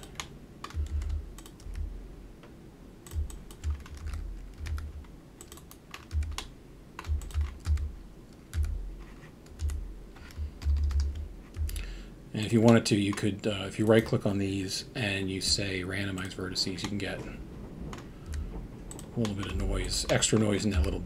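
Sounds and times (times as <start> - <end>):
keyboard keys clicking: 0.0 - 1.9, 3.0 - 8.8, 9.4 - 11.8.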